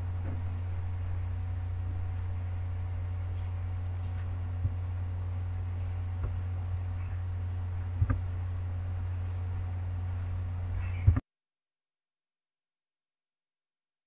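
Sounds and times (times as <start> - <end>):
low electrical hum: 0.0 - 11.2.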